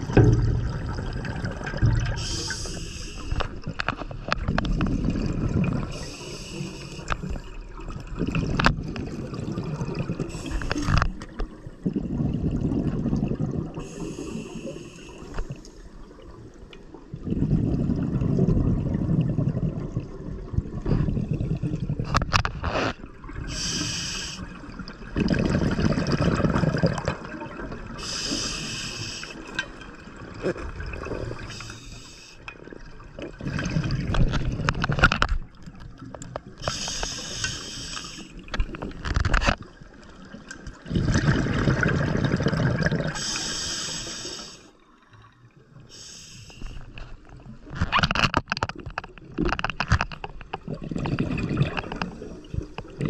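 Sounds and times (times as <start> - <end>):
underwater bubbling exhalations: 0.0 - 15.6, 17.0 - 29.4, 30.0 - 35.2, 40.2 - 44.6, 50.4 - 53.0
hissing regulator inhalations: 2.1 - 3.6, 5.9 - 7.4, 10.3 - 11.1, 13.8 - 15.9, 23.5 - 24.5, 28.0 - 29.5, 31.4 - 32.5, 36.6 - 38.4, 43.1 - 44.8, 45.9 - 47.0
sharp clicks from diving gear: 34.1 - 39.7, 47.7 - 52.9.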